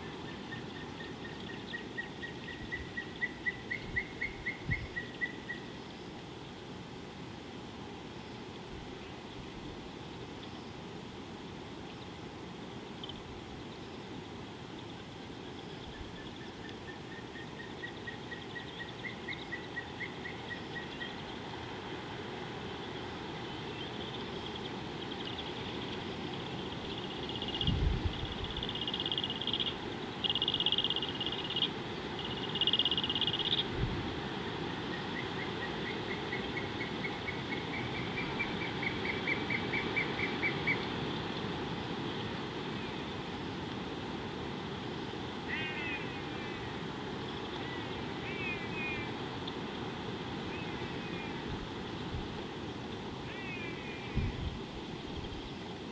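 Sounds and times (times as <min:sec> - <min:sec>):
high insect drone: 0:11.8 - 0:55.9.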